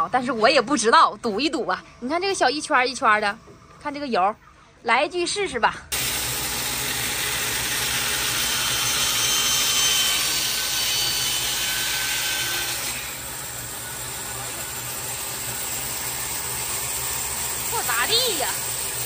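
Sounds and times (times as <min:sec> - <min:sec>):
motor hum: 0:00.0 - 0:12.1, 0:12.7 - 0:19.0
band saw rasping through wood: 0:06.0 - 0:19.0.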